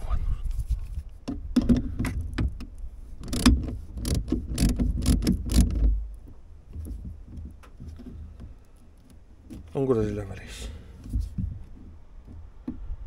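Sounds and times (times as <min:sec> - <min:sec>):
low rumbling handling noise: 0:00.0 - 0:13.0
socket ratchet clicking: 0:03.2 - 0:05.8.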